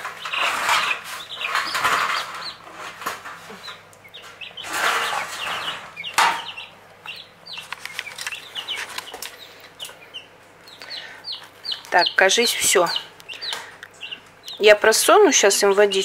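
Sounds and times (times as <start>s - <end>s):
chicks peeping: 0.0s - 16.0s
newspaper rustling: 7.6s - 9.4s.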